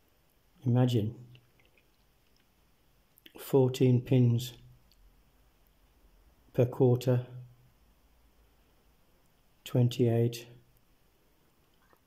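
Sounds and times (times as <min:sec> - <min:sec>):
person speaking: 0:00.6 - 0:01.4, 0:03.2 - 0:04.7, 0:09.6 - 0:10.6.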